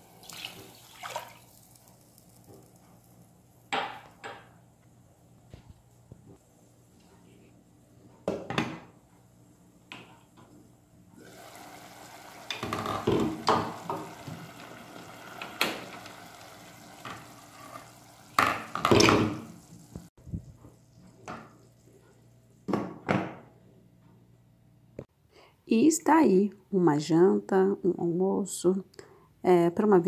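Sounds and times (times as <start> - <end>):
pot lids and pans clattering: 12.5 - 14.4.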